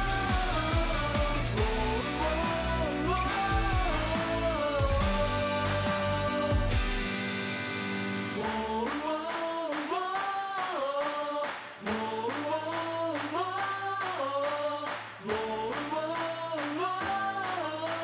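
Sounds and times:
steady beat: 0:00.0 - 0:06.8
voices singing a chant in harmony: 0:00.0 - 0:06.8, 0:08.4 - 0:18.0.

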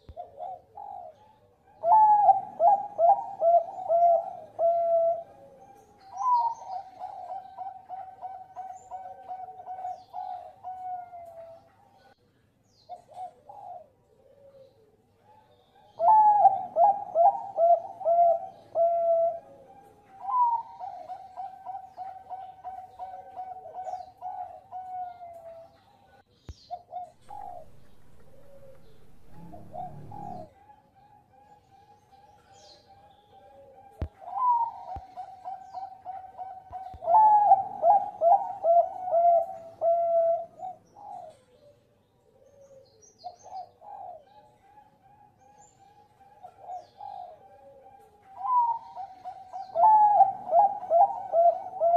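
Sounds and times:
dove cooing: 0:00.0 - 0:12.2, 0:12.9 - 0:51.9
low rumble: 0:27.2 - 0:30.5.

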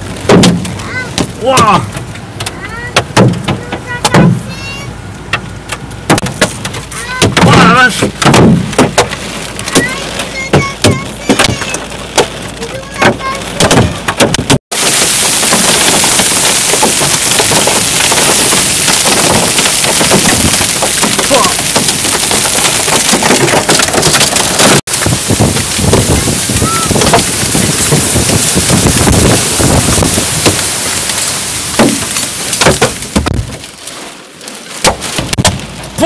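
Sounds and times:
hail and rain pelting road: 0:00.0 - 0:36.0
hailstones clattering on car: 0:00.0 - 0:36.0.

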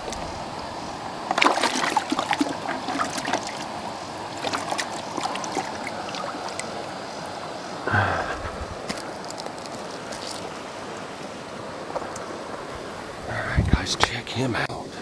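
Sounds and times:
steady background hiss: 0:00.0 - 0:15.0
water splashing in a plastic bucket: 0:01.2 - 0:07.0.

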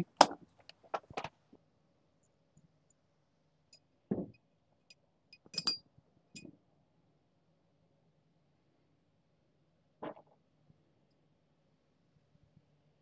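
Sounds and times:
metallic clink with ring: 0:05.3 - 0:05.8.

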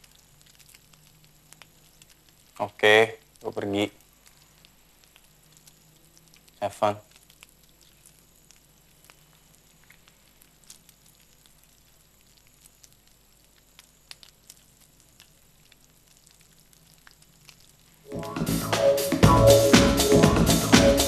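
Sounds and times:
small ticks: 0:00.0 - 0:18.1
food sizzling in a pan: 0:00.0 - 0:21.0.

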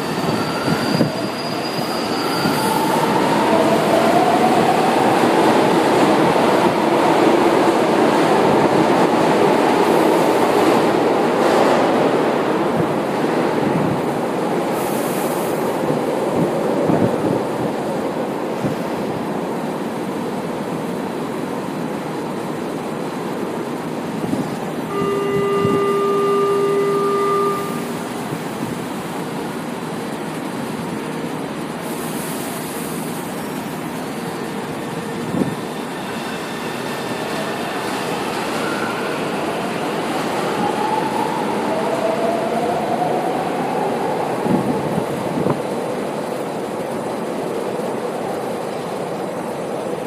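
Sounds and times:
train rumbling: 0:00.0 - 0:50.0
station noise: 0:24.2 - 0:29.2
held warning tone: 0:24.9 - 0:28.2.

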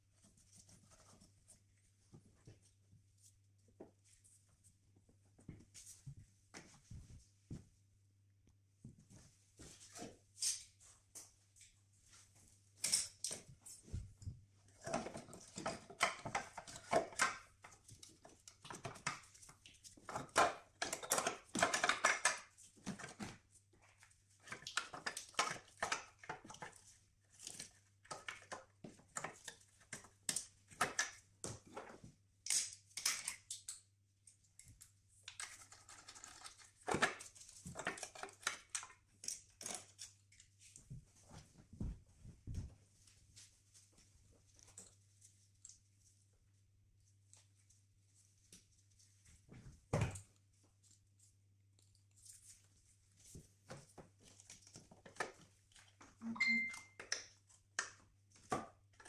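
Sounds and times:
plastic and metal parts handled: 0:14.7 - 0:40.8.

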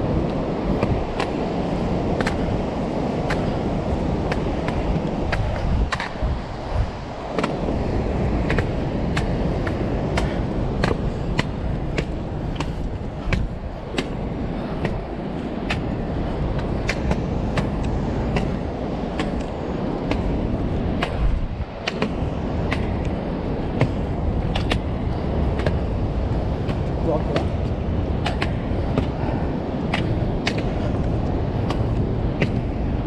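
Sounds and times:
footsteps on stone steps: 0:00.0 - 0:33.0
wind buffeting microphone: 0:00.0 - 0:33.0.

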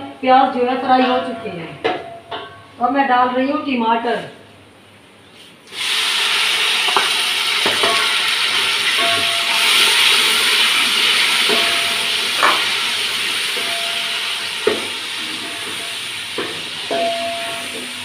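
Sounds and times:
food sizzling in hot oil: 0:05.7 - 0:18.0.

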